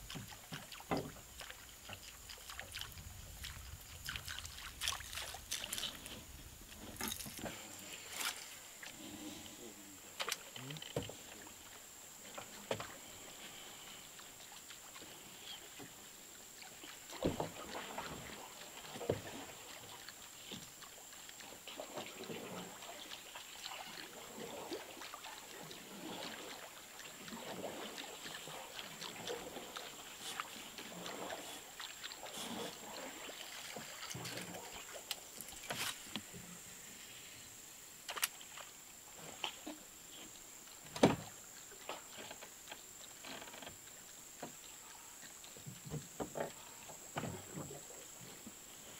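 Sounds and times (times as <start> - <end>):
water movement around hull: 0.0 - 48.9
knocks on boat: 40.9 - 41.3.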